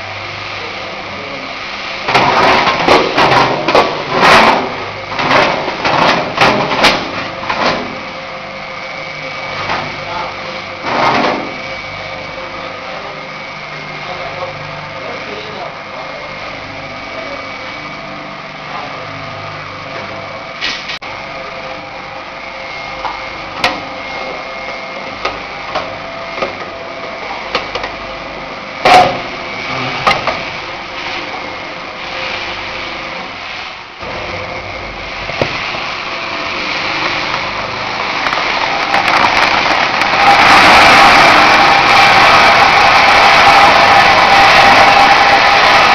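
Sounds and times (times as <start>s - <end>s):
roaster machine hum: 0.0s - 45.9s
nuts pouring into cardboard box: 38.3s - 40.3s.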